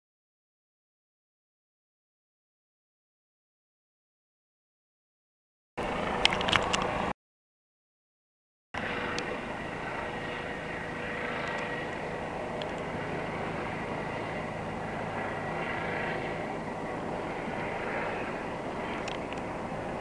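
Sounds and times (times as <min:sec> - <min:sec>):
helicopter hovering: 0:05.8 - 0:07.1, 0:08.8 - 0:20.0.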